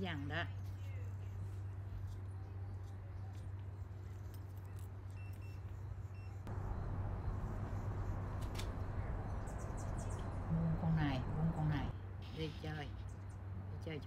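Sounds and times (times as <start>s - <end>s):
outdoor rumble with low hum: 0.0s - 14.0s
faint high beeps: 5.1s - 12.8s.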